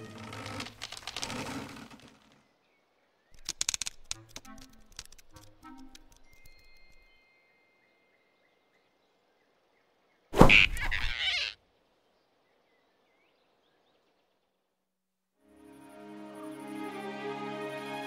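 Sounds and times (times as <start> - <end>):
cartoon swish: 10.4 - 11.6.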